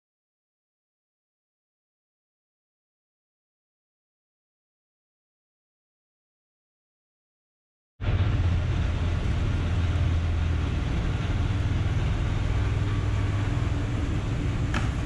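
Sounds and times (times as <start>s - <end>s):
pump humming: 8.0s - 15.0s.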